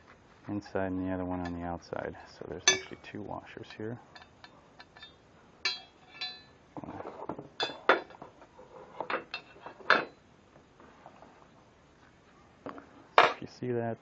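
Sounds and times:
metal washers and screws clinking: 2.6s - 3.0s, 4.1s - 6.6s, 7.6s - 8.2s.

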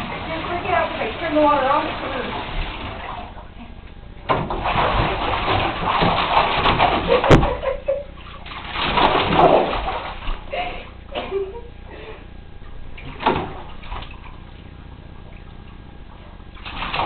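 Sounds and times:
dog splashing in bathwater: 0.0s - 3.4s, 4.4s - 10.7s, 16.5s - 17.0s.

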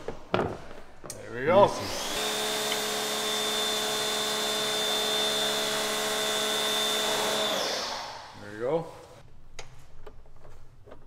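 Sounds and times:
small electric motor whirring: 1.6s - 8.4s.

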